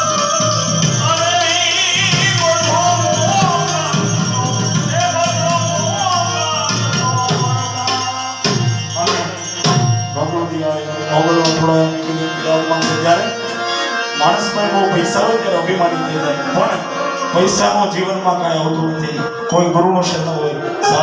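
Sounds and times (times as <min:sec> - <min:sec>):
jingling hand cymbals: 0:00.0 - 0:12.0, 0:16.6 - 0:18.6, 0:19.2 - 0:21.0
harmonium: 0:00.0 - 0:21.0
person singing: 0:00.0 - 0:21.0.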